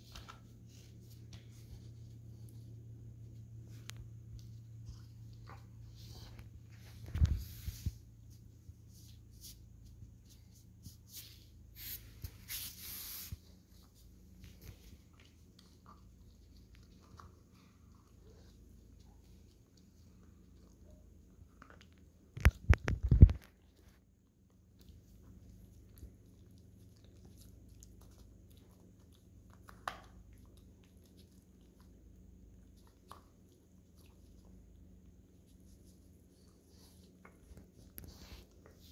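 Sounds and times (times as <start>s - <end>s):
puppy licking and gnawing ice: 13.8s - 38.9s.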